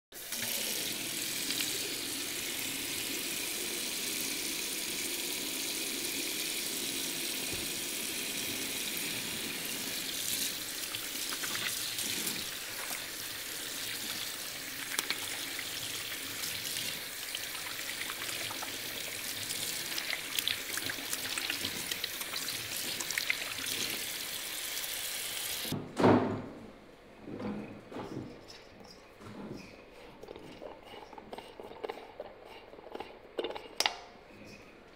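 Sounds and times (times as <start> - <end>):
tap water running into sink: 0.2 - 25.8.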